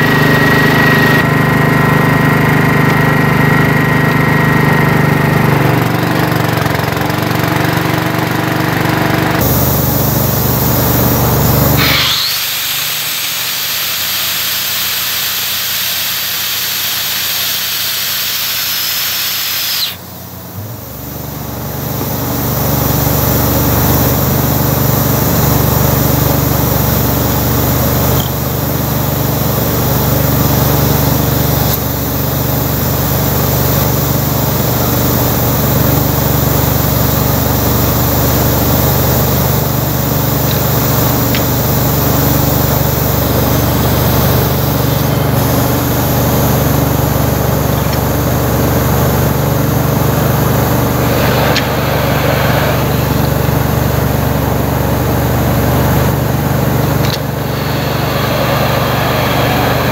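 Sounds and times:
air compressor engine running: 0.0 - 59.9
pneumatic rock drill: 5.5 - 59.9
compressed air hissing: 9.4 - 35.8, 36.9 - 59.9.

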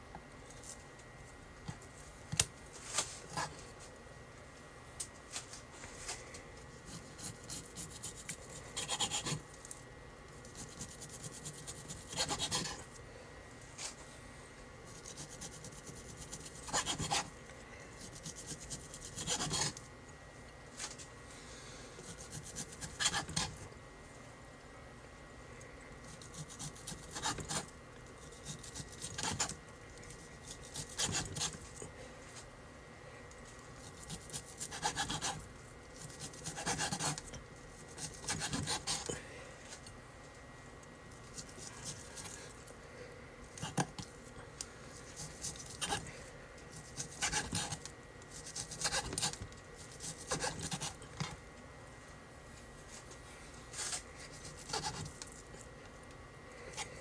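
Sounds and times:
knife sawing through meat: 6.9 - 9.4, 10.6 - 12.8, 15.0 - 17.3, 18.0 - 19.8, 22.0 - 23.6, 26.2 - 27.7, 28.3 - 29.6, 30.4 - 31.6, 33.9 - 35.4, 36.0 - 37.2, 38.0 - 39.1, 45.2 - 46.1, 46.8 - 51.0, 53.8 - 55.1.

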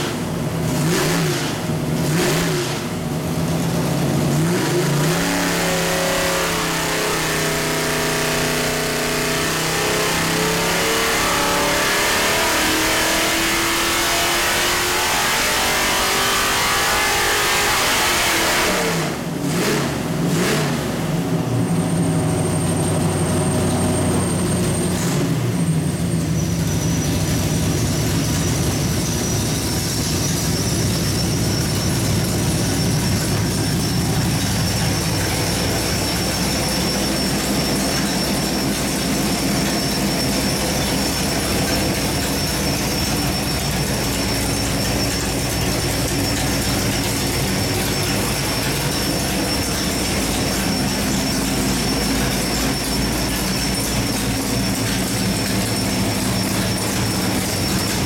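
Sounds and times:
engine running steadily: 0.0 - 58.0
high-pitched whine: 21.6 - 58.0.

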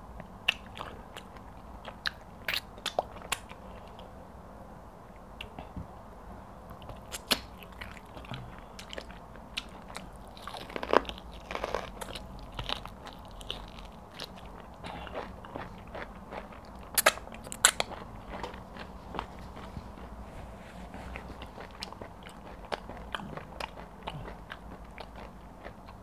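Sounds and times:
person chewing with wet mouth sounds: 0.2 - 4.1, 6.7 - 26.0
sharp mouth smacks and clicks: 17.0 - 17.8.

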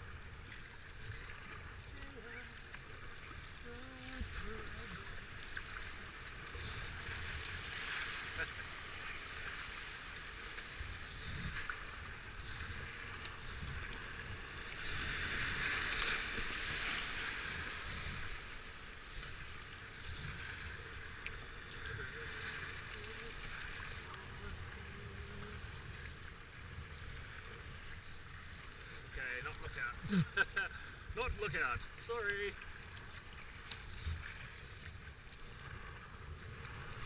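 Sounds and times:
rushing whitewater: 28.8 - 34.1.

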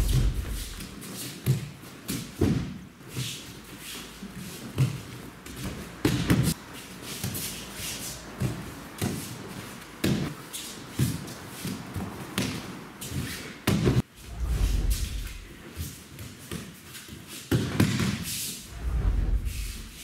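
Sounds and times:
bare feet thumping on mats: 0.0 - 0.9, 1.5 - 2.8, 13.6 - 14.0
clothing swishing: 0.0 - 1.4, 13.0 - 16.0, 18.5 - 20.0.

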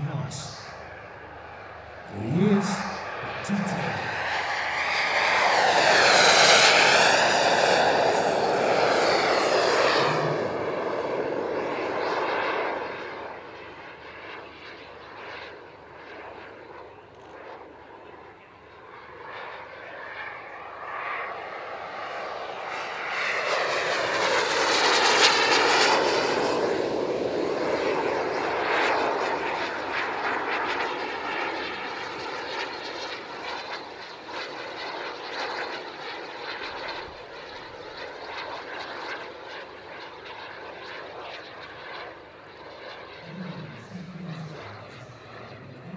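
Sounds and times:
model jet turbine flying past: 2.6 - 45.9.

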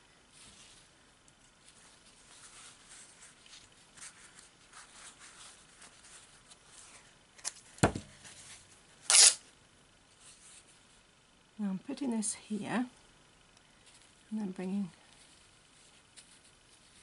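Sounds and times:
fabric rustling: 0.3 - 7.2, 15.1 - 17.0.

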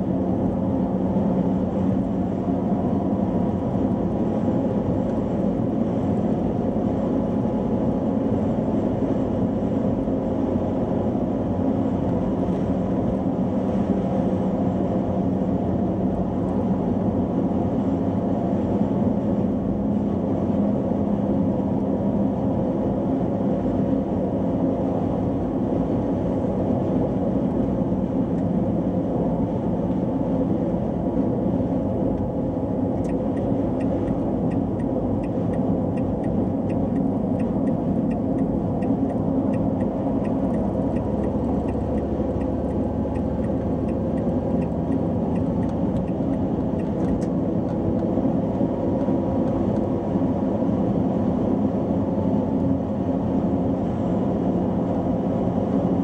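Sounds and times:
car engine and tyre rumble: 0.0 - 56.0
turn signal ticking: 32.9 - 49.8.

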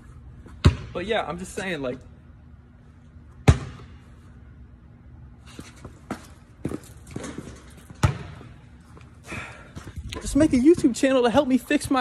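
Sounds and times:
basketball bouncing on concrete: 0.5 - 1.0, 3.4 - 4.0, 6.0 - 8.6, 9.8 - 11.5
footsteps on concrete floor: 5.4 - 11.5.

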